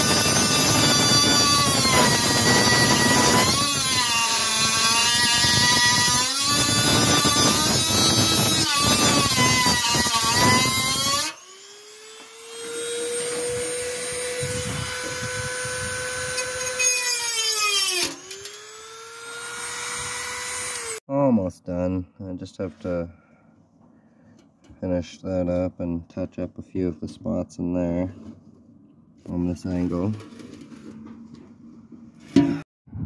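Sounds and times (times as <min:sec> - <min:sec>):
rotary tool whining cutting plastic: 0:00.0 - 0:21.0.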